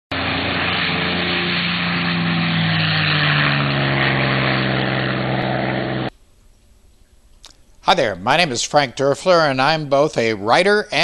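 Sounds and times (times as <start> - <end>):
propeller aircraft engine running: 0.1 - 7.8.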